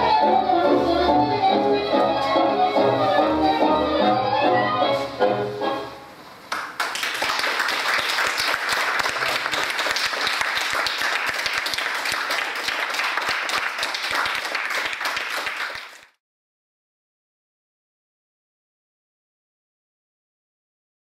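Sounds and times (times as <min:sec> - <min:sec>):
audience applauding: 0:06.5 - 0:16.2.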